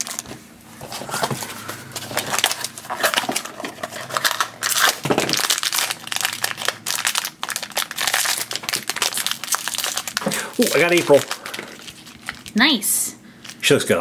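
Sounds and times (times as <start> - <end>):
foil pouch crinkling and tearing: 1.9 - 12.6.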